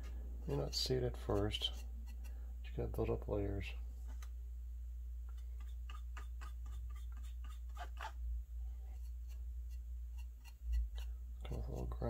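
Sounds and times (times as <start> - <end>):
brush scratching strokes: 0.0 - 2.4, 5.3 - 12.0
steady low hum: 0.0 - 12.0.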